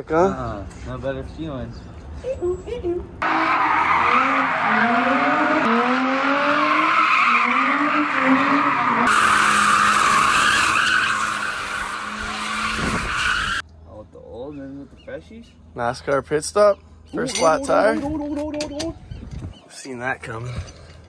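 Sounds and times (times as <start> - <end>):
car engines revving: 3.2 - 13.6
tyres screeching: 3.2 - 13.6.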